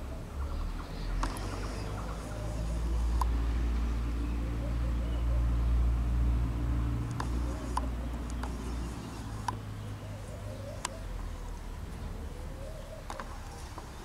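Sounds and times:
passing vehicle rumble: 0.0s - 14.0s
sharp ticks: 1.1s - 2.2s, 2.8s - 3.4s, 7.0s - 9.7s.

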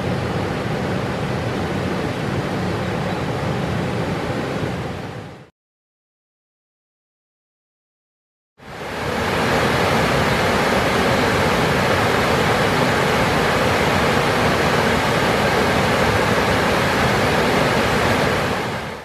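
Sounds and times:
rushing river water: 8.6s - 19.0s.

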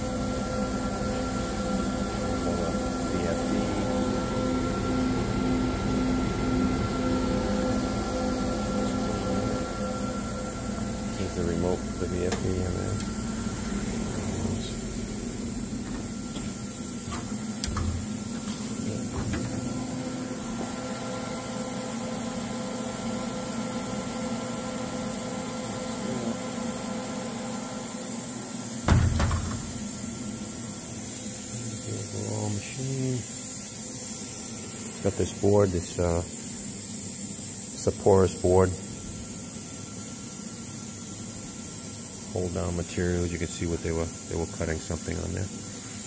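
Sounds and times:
electrical hum: 0.0s - 46.0s
loud thump: 28.8s - 29.8s.

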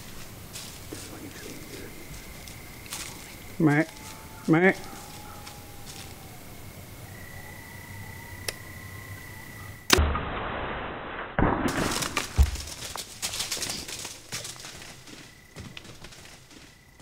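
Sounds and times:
deer running through dry leaves: 0.0s - 6.4s, 11.8s - 17.0s.

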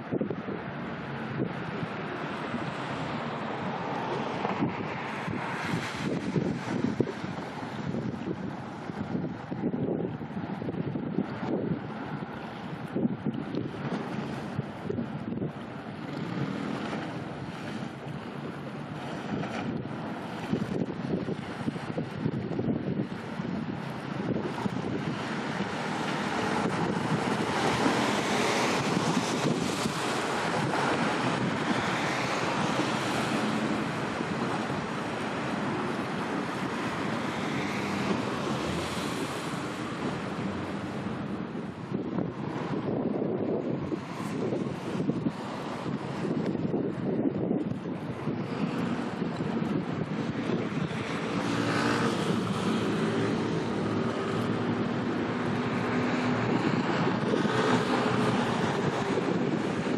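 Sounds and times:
waves washing: 0.0s - 59.9s
wind buffeting microphone: 0.0s - 59.9s
water washing: 13.4s - 42.8s.

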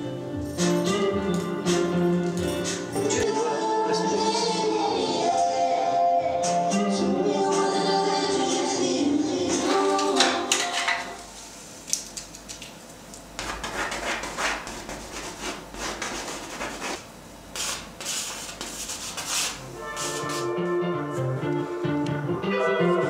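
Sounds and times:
painting tools scraping paint: 17.6s - 20.5s.

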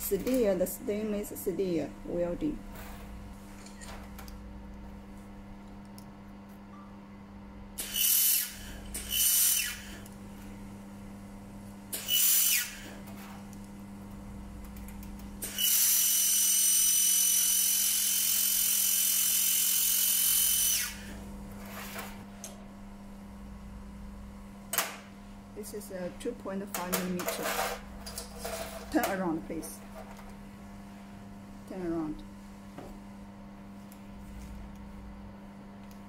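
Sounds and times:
low steady hum: 0.0s - 7.8s, 20.8s - 36.0s.

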